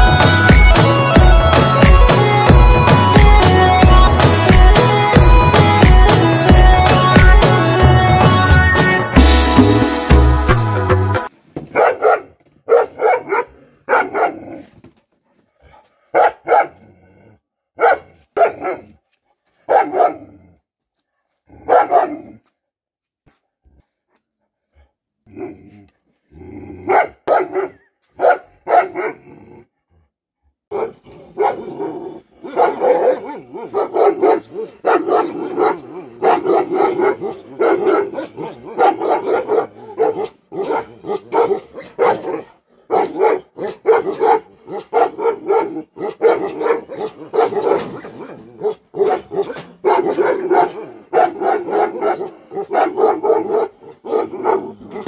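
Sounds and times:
dog barking angrily: 11.7 - 14.7, 15.6 - 16.9, 17.8 - 19.0, 19.6 - 20.5, 21.5 - 22.4, 26.8 - 29.4, 30.7 - 55.0.

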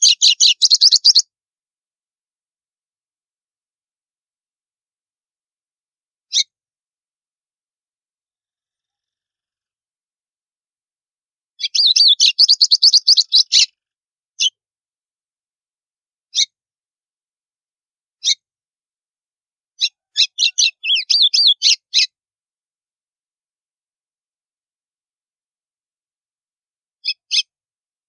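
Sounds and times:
bird singing sharp high chirps: 0.0 - 1.3, 11.6 - 13.7, 19.8 - 22.1.

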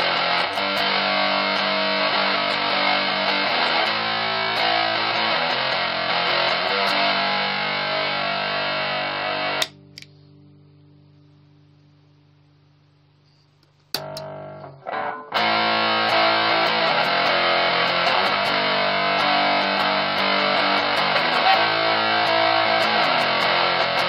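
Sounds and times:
distorted electric guitar: 0.0 - 11.3, 13.9 - 24.0.

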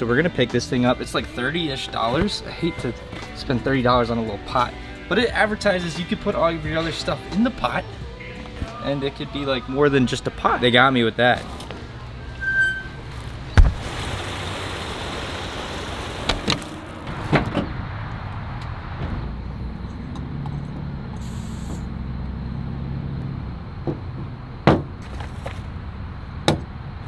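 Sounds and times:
traffic noise: 0.0 - 27.0
vehicle engine passing: 13.0 - 23.8.

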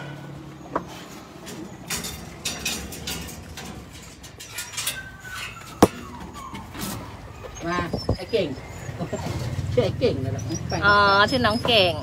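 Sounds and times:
wire dog cages rattling: 1.2 - 7.8.

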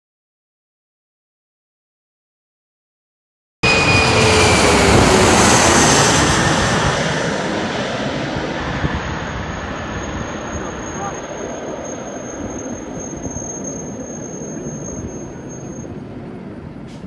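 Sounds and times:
jet passing overhead: 3.6 - 17.0.

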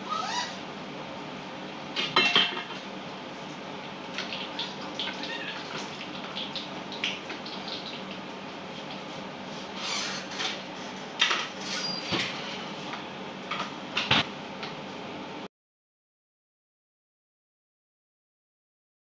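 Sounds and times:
background hum: 0.0 - 15.5
cookware and utensils clinking: 2.0 - 2.8.

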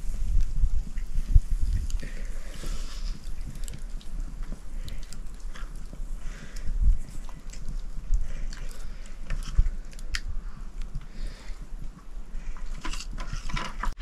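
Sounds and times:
wood fire crackling: 0.0 - 14.0.

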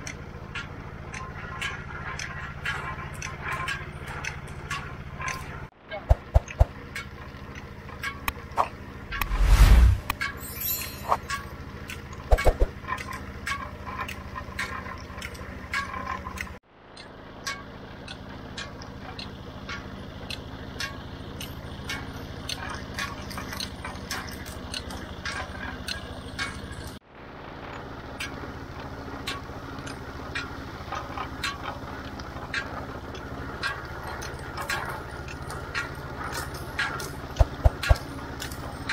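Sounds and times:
roller crusher humming: 17.4 - 38.9.

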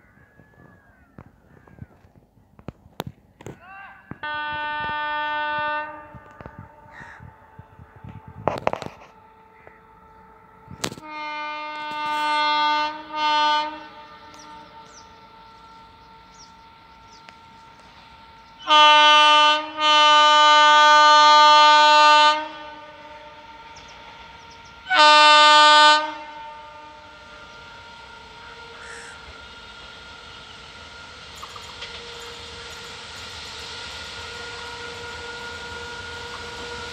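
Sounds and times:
locomotive horn blasts: 4.1 - 30.1, 34.0 - 36.9.

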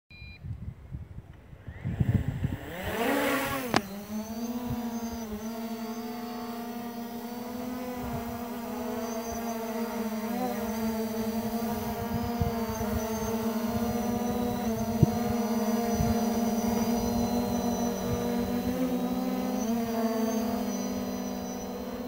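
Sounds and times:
drone propellers buzzing: 1.4 - 22.0.

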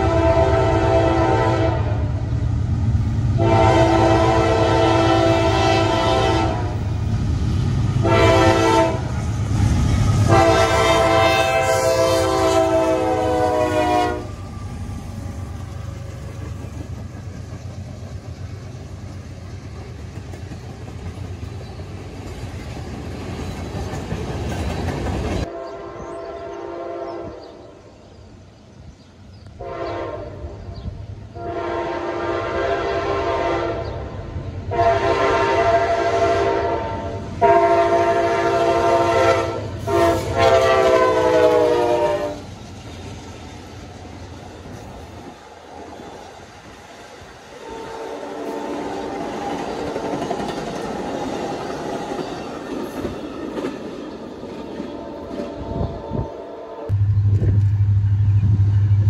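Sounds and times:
locomotive horn blasts: 0.0 - 2.1, 3.4 - 6.8, 8.0 - 9.1, 10.3 - 14.4, 25.5 - 27.4, 29.6 - 30.6, 31.3 - 34.1, 34.7 - 42.4, 47.6 - 48.9
train wheel clatter: 14.3 - 25.5, 48.4 - 55.6.

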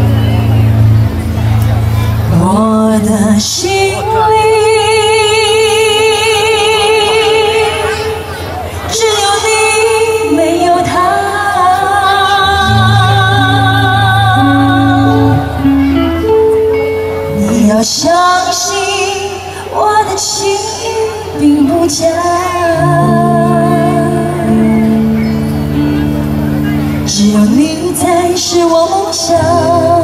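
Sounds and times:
pop band playing: 0.0 - 5.4, 6.4 - 30.0
woman singing: 2.3 - 8.3, 8.9 - 15.7, 17.3 - 25.2, 27.0 - 30.0.

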